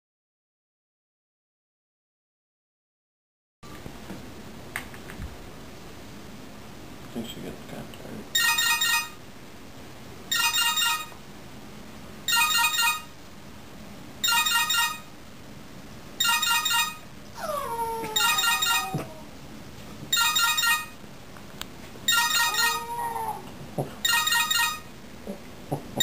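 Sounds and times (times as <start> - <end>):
phone ringtone trilling: 8.4 - 9.2, 10.3 - 11.2, 12.3 - 13.1, 14.2 - 15.1, 16.2 - 17.0, 18.2 - 19.0, 20.1 - 21.0, 22.1 - 22.9, 24.0 - 24.9
dog howling: 17.4 - 19.4, 22.2 - 23.6.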